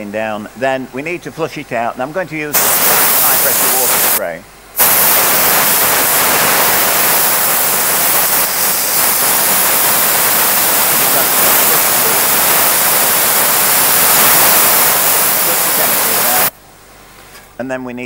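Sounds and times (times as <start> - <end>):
water spray gun hissing: 2.6 - 4.2, 4.8 - 16.5.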